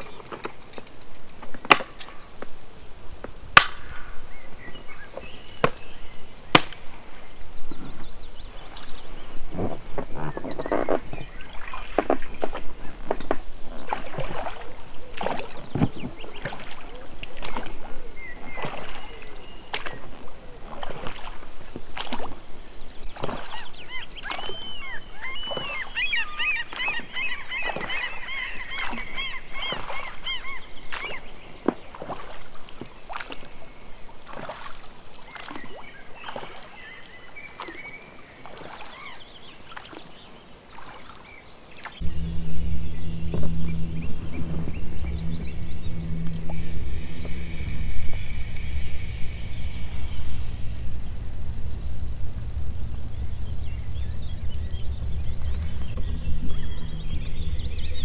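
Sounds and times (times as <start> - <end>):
low steady hum: 0.0 - 38.0, 41.9 - 58.0
oars splashing water: 3.6 - 51.3
birds chirping: 3.9 - 32.4, 35.2 - 58.0.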